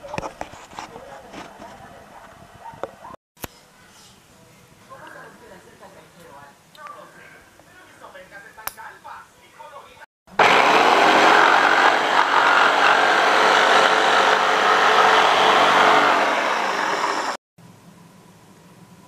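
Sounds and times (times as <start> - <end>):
jigsaw cutting wood: 10.3 - 17.4.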